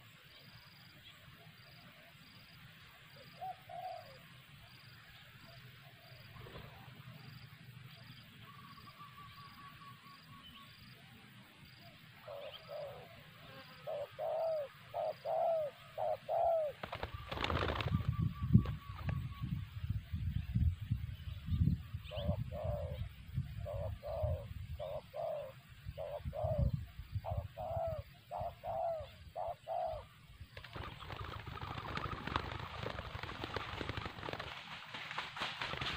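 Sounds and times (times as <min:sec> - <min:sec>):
doves cooing: 0:03.4 - 0:04.2, 0:12.2 - 0:19.4, 0:22.1 - 0:34.6
wings flapping: 0:16.7 - 0:19.4, 0:30.5 - 0:35.9.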